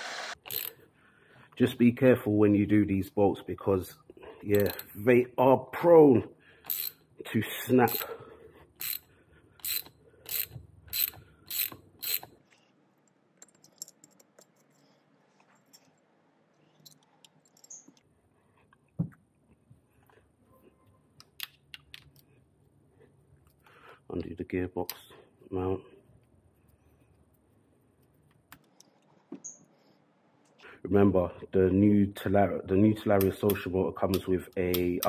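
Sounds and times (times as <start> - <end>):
ratchet wrench clicking: 0.4 - 0.8, 4.6 - 4.9, 6.7 - 7.0, 7.9 - 8.1, 8.8 - 12.3.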